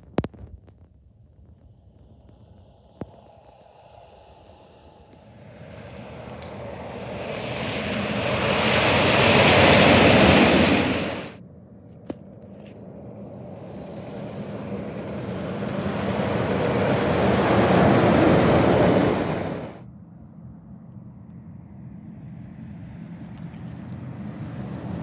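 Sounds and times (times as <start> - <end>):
truck driving past: 12.8 - 19.8.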